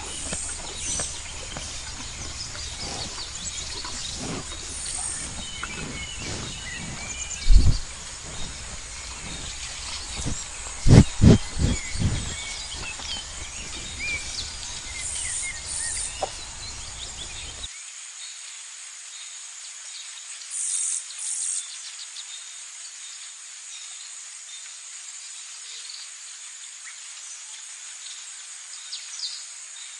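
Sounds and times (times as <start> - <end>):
bird chirps: 0.0 - 17.7
insect chirring: 0.0 - 17.7
low rumble: 0.0 - 17.7.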